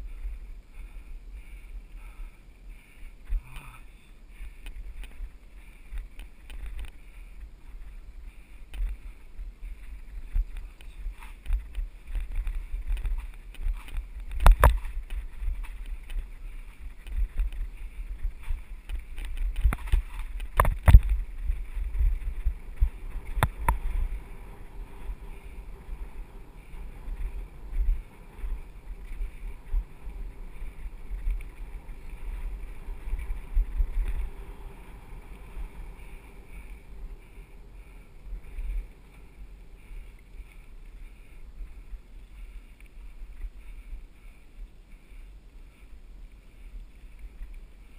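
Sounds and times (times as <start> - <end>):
tyres and wind rumble: 0.0 - 47.9
bike knocking and rattling: 4.4 - 40.8.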